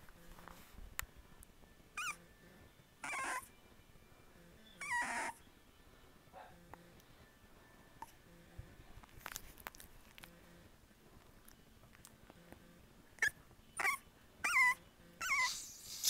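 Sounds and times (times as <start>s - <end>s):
puppies whining: 2.0s - 3.6s, 4.6s - 5.4s, 13.2s - 15.9s.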